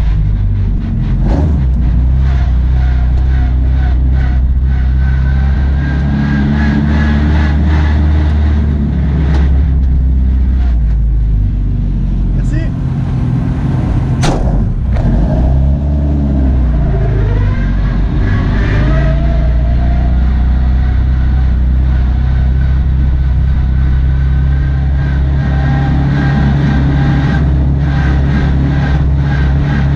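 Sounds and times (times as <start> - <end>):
car engine at low revs: 0.0 - 29.9
sharp cracks: 14.2 - 15.0.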